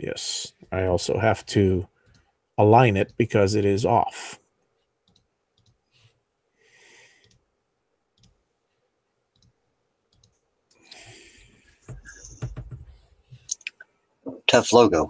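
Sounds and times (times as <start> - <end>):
computer mouse clicks: 5.0 - 6.1, 7.2 - 7.4, 8.2 - 8.4, 9.3 - 10.4.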